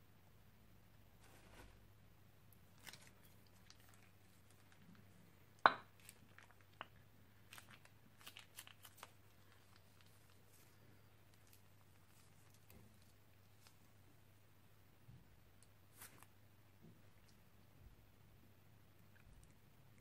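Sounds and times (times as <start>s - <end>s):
slime sticky crackles and pops: 6.0s - 10.4s.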